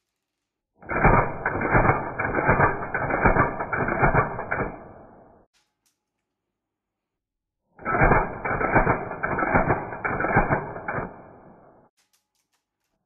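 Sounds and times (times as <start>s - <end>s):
airsoft rifle rapid firing: 0.8s - 5.2s, 7.8s - 11.6s.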